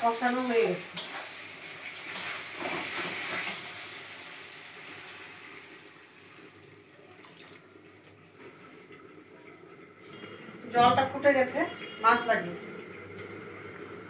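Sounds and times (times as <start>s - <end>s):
water splashing into a pan: 0.6s - 7.8s.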